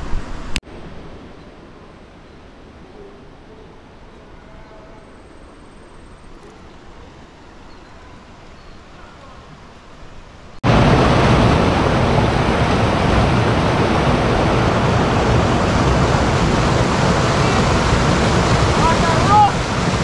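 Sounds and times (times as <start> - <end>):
faint outdoor background hush: 0.0 - 10.8
river rapids rushing over boulders: 10.6 - 20.0.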